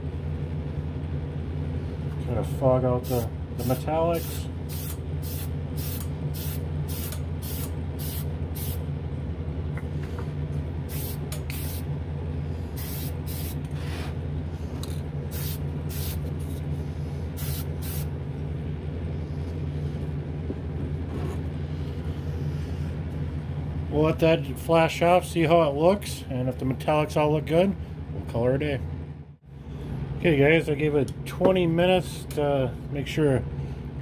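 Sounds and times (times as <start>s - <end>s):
exhaust fan humming: 0.0s - 34.0s
aerosol can hissing bursts: 4.2s - 8.8s, 10.9s - 11.8s, 12.8s - 13.6s, 15.3s - 16.2s, 17.4s - 18.1s.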